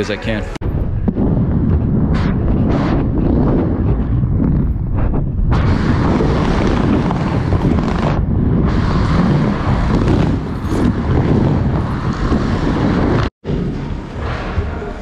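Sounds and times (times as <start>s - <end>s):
wind buffeting microphone: 0.6s - 15.0s
skate wheels rumbling: 0.8s - 15.0s.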